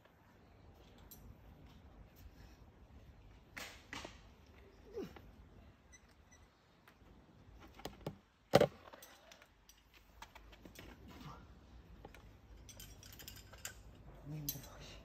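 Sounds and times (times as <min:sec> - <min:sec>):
climbing gear clinking: 0:00.7 - 0:02.3, 0:08.8 - 0:15.0.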